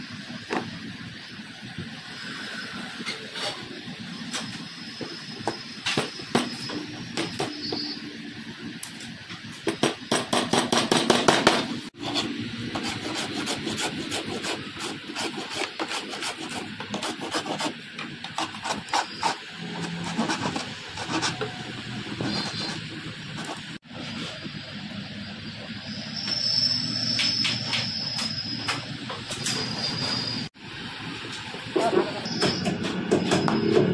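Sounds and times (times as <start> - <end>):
sandpaper rubbing on wood: 12.0 - 23.8.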